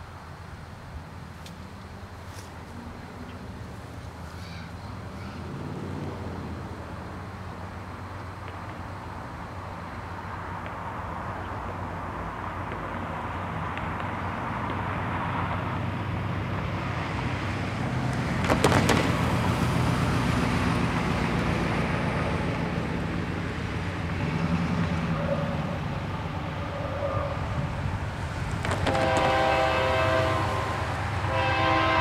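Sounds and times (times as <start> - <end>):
car driving past: 4.5 - 7.5.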